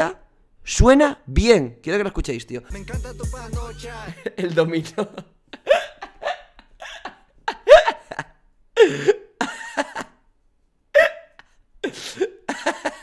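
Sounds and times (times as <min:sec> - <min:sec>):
man laughing hard: 0:03.9 - 0:10.3, 0:11.0 - 0:13.0.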